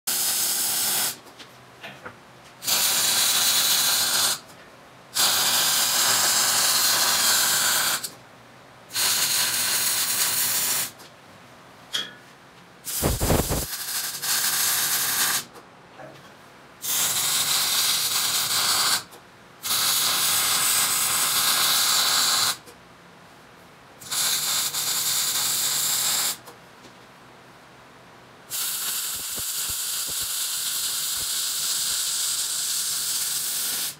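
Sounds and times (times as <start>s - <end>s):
welder crackling hiss: 0.1s - 1.2s, 2.6s - 4.4s, 5.2s - 8.2s, 8.9s - 11.0s, 12.9s - 15.5s, 16.8s - 22.6s, 24.0s - 26.5s, 28.5s - 33.9s.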